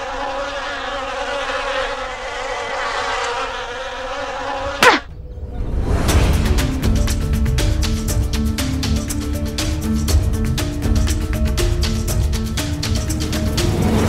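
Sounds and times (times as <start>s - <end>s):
housefly buzzing: 0.0s - 5.1s.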